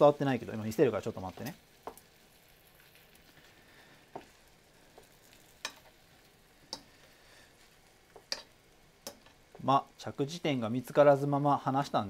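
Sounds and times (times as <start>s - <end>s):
meat sizzling in a frying pan: 0.0s - 12.0s.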